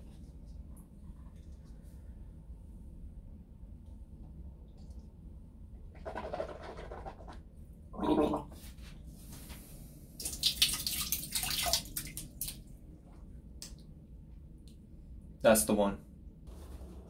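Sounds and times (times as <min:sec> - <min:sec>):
man gargling water: 0:08.0 - 0:08.5.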